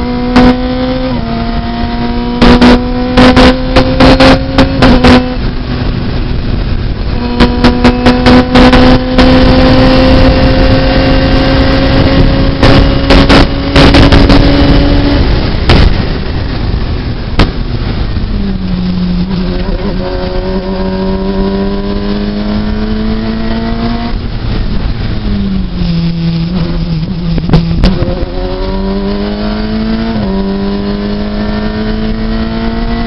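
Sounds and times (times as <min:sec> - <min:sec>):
race car engine accelerating: 0:00.0 - 0:16.6, 0:18.5 - 0:33.0
loud crackling distortion bursts: 0:12.4 - 0:19.0.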